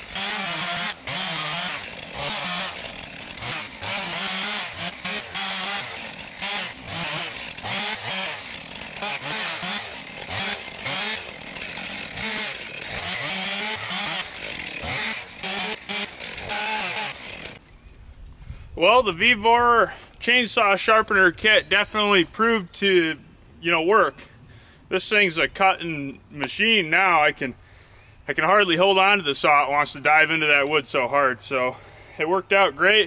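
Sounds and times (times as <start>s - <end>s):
chainsaw cutting through log: 0.0s - 17.6s.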